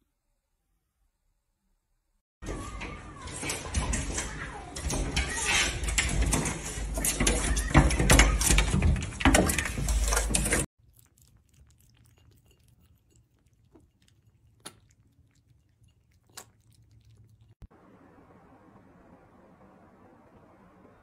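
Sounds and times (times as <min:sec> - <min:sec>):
cats lapping milk: 0:10.8 - 0:17.7.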